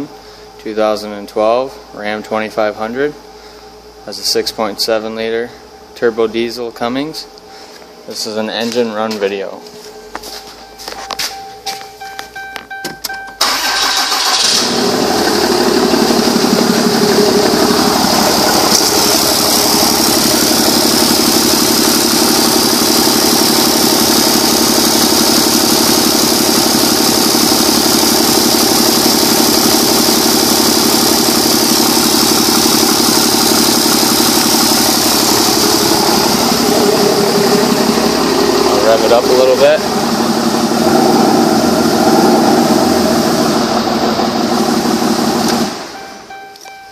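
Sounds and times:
diesel engine starting and idling: 0.0s - 46.9s
clicks: 46.4s - 46.8s.

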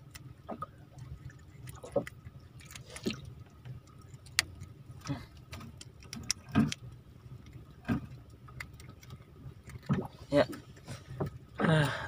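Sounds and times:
low steady hum: 0.0s - 12.0s
clicks and knocks of fishing gear: 5.3s - 6.9s.

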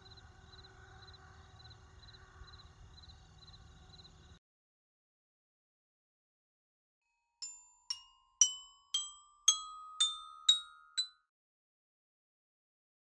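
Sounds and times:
rising glockenspiel-like notes: 7.4s - 11.2s.

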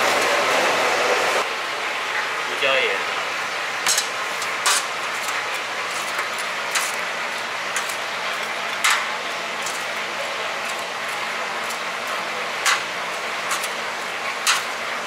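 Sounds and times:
kitchen hum: 0.0s - 15.0s.

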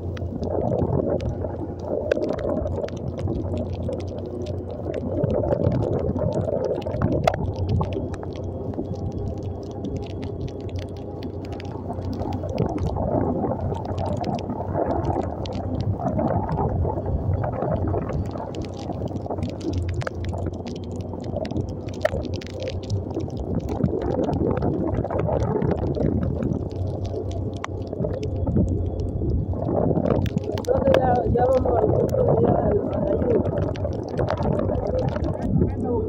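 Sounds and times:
sharp ticks: 0.0s - 16.1s, 17.6s - 35.6s
wind rumble on microphone: 0.0s - 36.0s.

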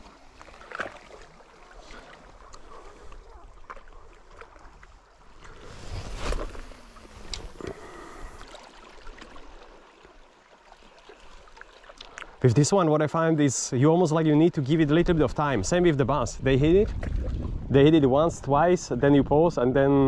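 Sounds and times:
small waves lapping against rocks: 0.0s - 12.9s
water rushing: 4.4s - 12.8s.

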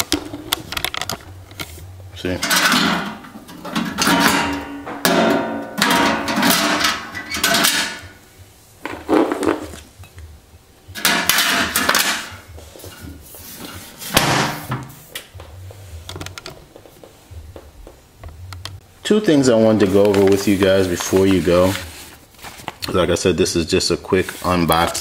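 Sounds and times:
metal clattering and knocking: 2.4s - 8.1s.

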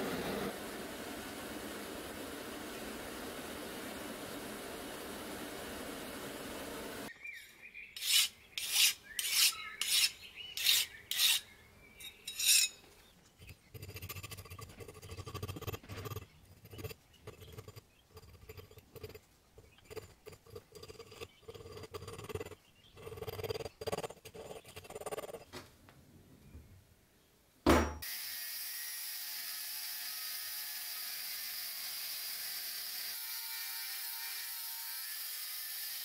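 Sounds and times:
loud rasping strokes: 8.0s - 11.5s.

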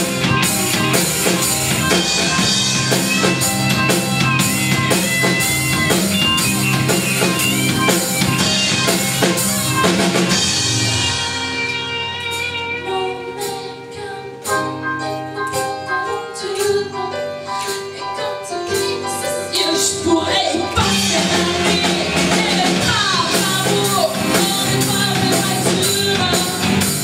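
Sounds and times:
live band playing pop song: 0.0s - 27.0s
woman singing into microphone: 12.7s - 26.9s.

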